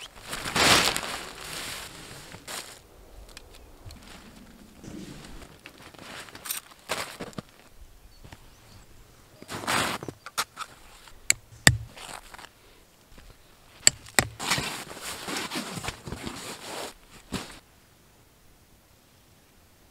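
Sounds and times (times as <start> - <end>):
nylon tent fabric rustling: 0.0 - 3.0, 4.0 - 7.7, 13.7 - 17.6
tent pole clips clicking: 10.2 - 12.5, 13.8 - 14.8.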